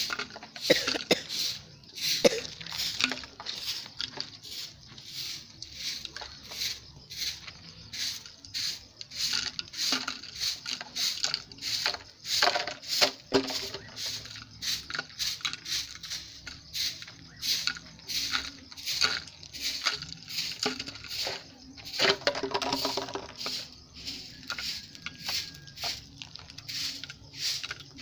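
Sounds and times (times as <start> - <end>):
broom sweeping dry earth: 0.0 - 28.0.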